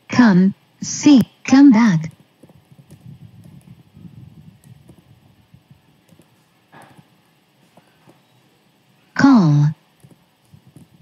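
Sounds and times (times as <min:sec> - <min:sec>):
soft keyboard keystrokes: 0:06.0 - 0:07.1, 0:10.0 - 0:10.9.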